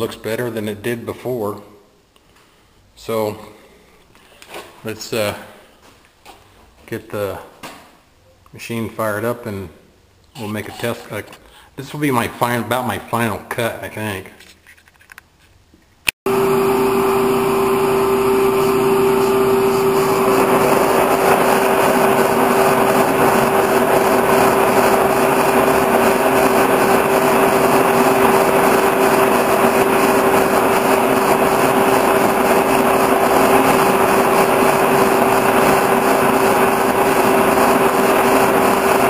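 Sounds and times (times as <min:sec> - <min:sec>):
boring mill drive whine: 0:16.3 - 0:39.0
machine noise: 0:16.3 - 0:39.0.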